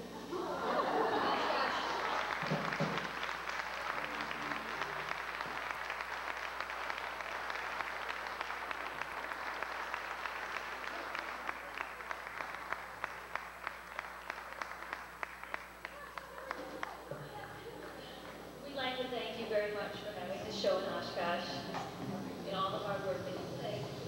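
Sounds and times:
audience applauding: 0.5 - 18.0.

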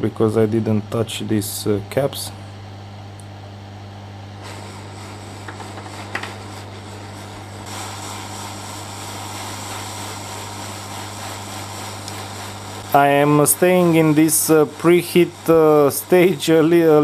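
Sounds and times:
hot air rework station hissing: 4.3 - 17.0.

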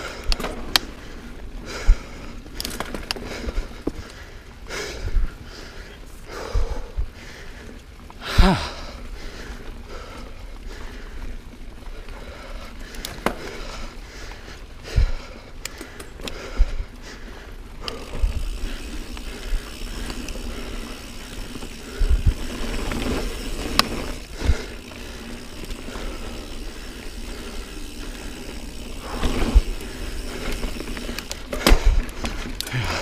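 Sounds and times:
bike tyres rumbling on dirt: 0.0 - 33.0.

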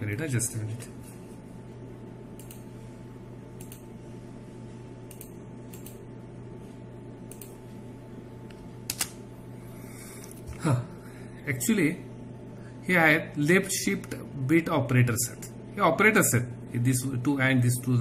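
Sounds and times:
low electrical hum: 0.0 - 18.0
computer key clicks: 2.4 - 2.7, 3.6 - 3.9, 5.1 - 6.0, 7.3 - 7.6, 8.9 - 9.2.

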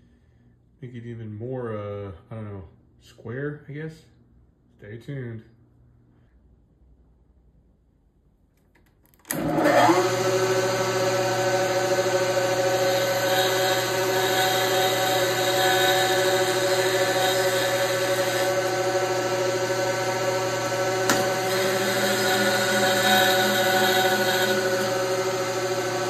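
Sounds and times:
milling machine spindle whine: 9.3 - 26.0.

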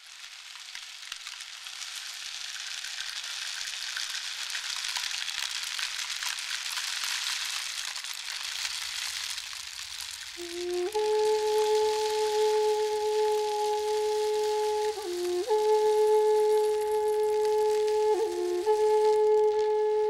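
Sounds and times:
crackling hiss of fine ticks: 0.0 - 20.0
flute note: 10.4 - 20.0.

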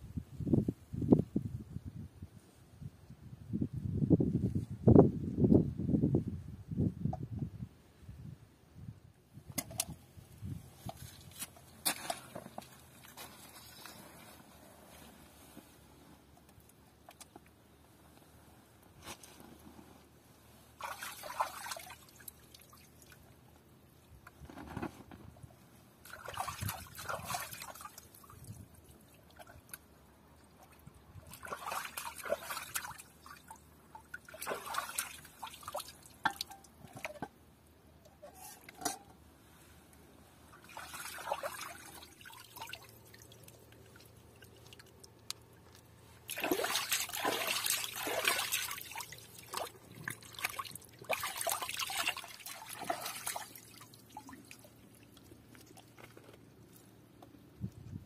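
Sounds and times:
water trickling and splashing: 20.7 - 23.5, 26.0 - 37.2, 40.5 - 56.8.

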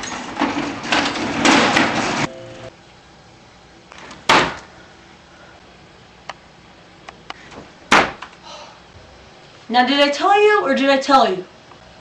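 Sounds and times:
loud thump: 7.9 - 8.2.

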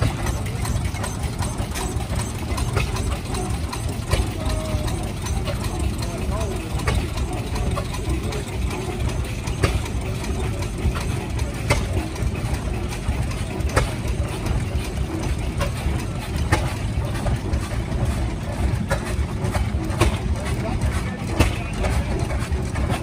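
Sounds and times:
stationary engines chugging: 0.0 - 23.0
sharp engine knock: 18.8 - 23.0.

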